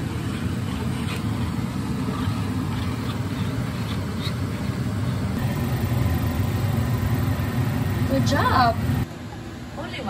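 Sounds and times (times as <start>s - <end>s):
fork beating egg in bowl: 0.0s - 9.0s
steady low hum: 0.0s - 10.0s.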